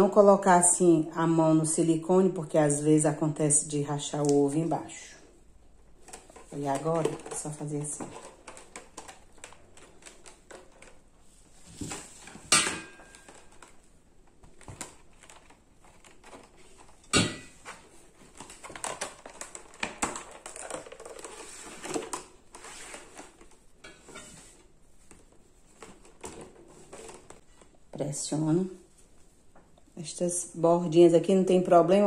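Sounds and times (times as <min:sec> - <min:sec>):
plastic mould clicking and crackling: 0:05.8 - 0:11.2, 0:11.9 - 0:22.6.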